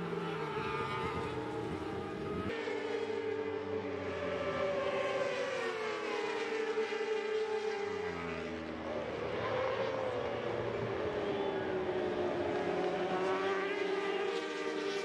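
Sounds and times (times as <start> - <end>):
sport bikes passing at high revs: 0.0 - 15.0.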